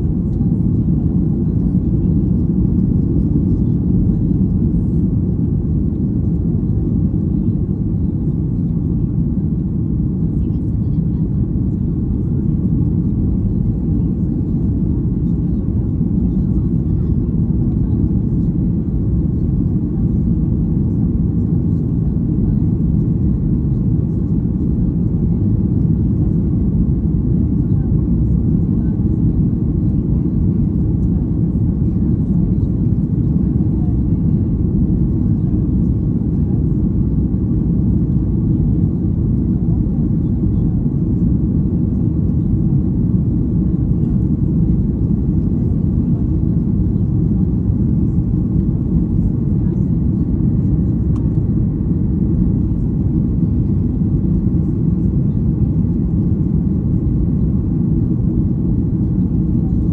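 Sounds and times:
jet airliner cabin rumble: 0.0s - 59.9s.

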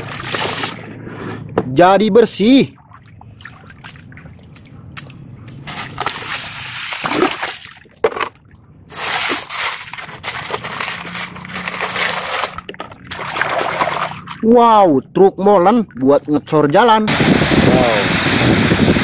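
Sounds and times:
splashing in muddy water: 2.8s - 8.0s, 9.2s - 14.5s.

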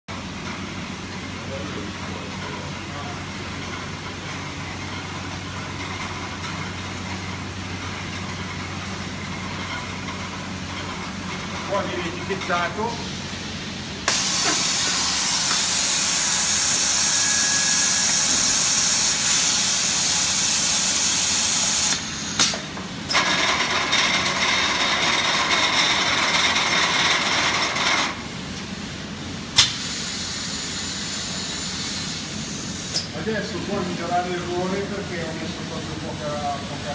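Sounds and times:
machinery hissing: 11.7s - 23.5s, 29.6s - 36.9s.

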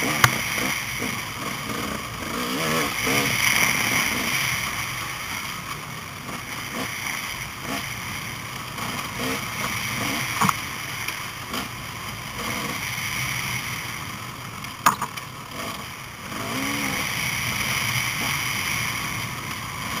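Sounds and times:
motorcycle engines running: 0.0s - 20.0s
sharp knocks: 14.8s - 15.2s.

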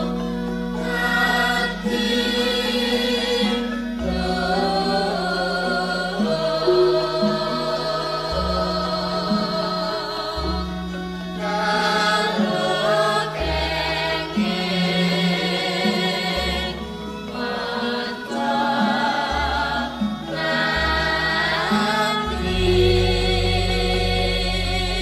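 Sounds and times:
gamelan accompaniment: 0.0s - 25.0s.

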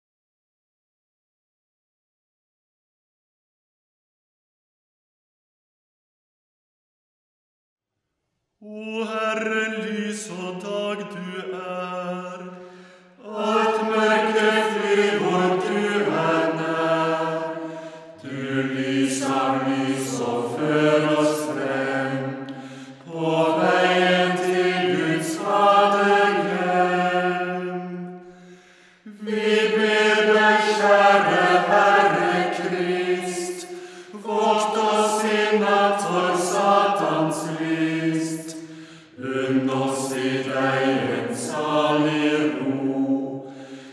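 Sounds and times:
unaccompanied chant singing: 13.2s - 28.2s, 29.1s - 43.9s.

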